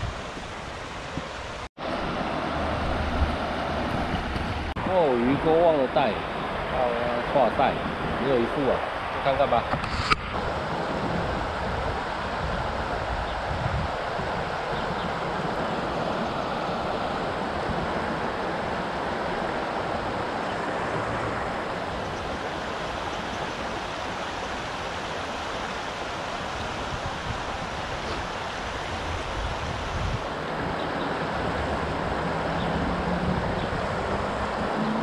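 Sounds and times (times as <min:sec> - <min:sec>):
wind buffeting microphone: 0:00.0 - 0:24.9, 0:26.4 - 0:35.0
river water rushing over rocks: 0:00.0 - 0:35.0.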